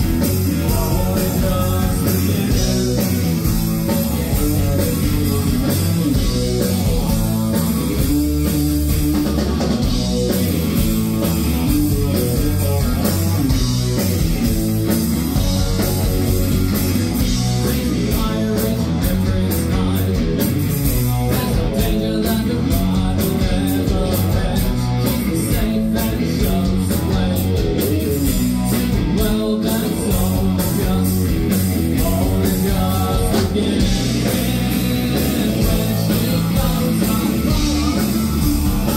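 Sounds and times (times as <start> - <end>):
man singing lead vocals: 0.0 - 7.9, 17.3 - 38.9
bass guitar: 0.0 - 38.9
drum kit beat: 0.0 - 38.9
electric guitar: 0.0 - 38.9.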